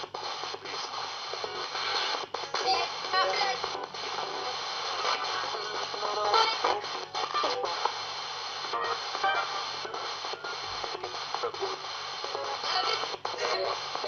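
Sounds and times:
radio static hiss: 0.0s - 14.0s
snatches of music and voices: 0.0s - 14.0s.

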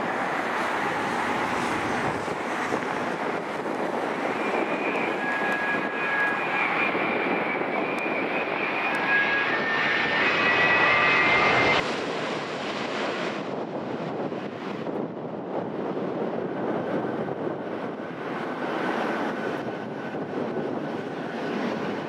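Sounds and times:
jet engines roaring and whining: 0.0s - 22.0s.

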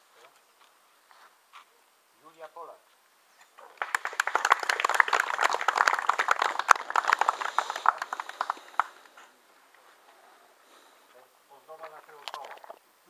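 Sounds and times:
small group applauding: 3.6s - 9.3s.

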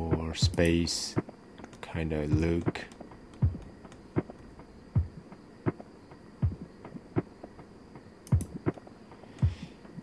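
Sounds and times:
ambient music with low pulse: 0.0s - 10.0s.

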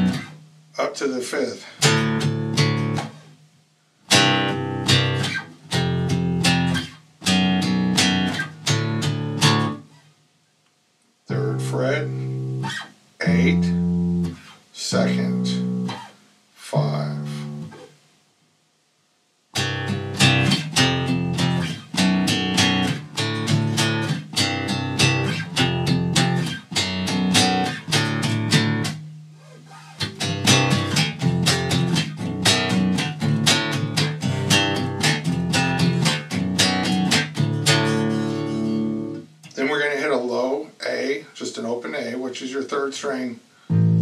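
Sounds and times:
electric bass plucked notes: 0.0s - 0.5s, 1.8s - 3.2s, 4.1s - 9.8s, 11.3s - 16.0s, 16.8s - 17.8s, 19.6s - 29.4s, 30.0s - 39.6s, 43.7s - 44.0s.

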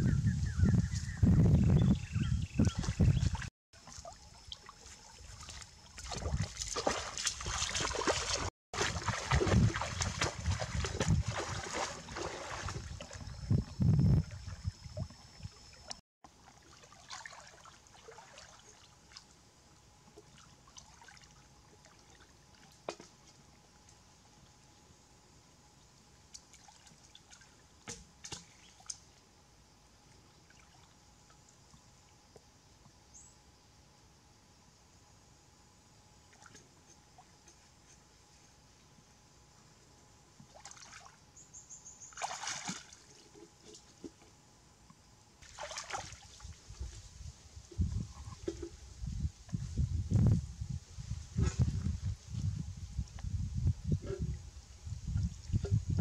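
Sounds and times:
wading through shallow water: 2.5s - 23.5s, 40.4s - 41.2s, 42.0s - 44.2s, 45.4s - 47.2s.

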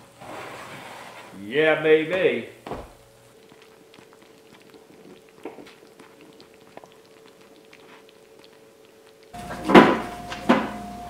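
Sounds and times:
faint hum: 1.1s - 11.0s
small ticks and clicks: 3.3s - 9.4s.

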